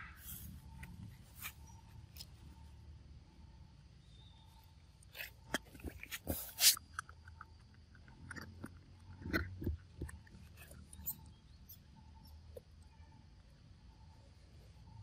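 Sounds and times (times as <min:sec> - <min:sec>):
monkey chewing and crunching food: 0:05.0 - 0:11.8.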